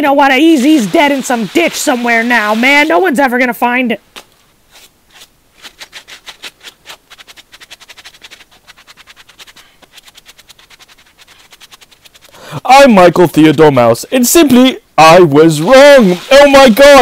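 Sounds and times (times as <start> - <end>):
stiff brush scrubbing wet toy: 5.6 - 12.4.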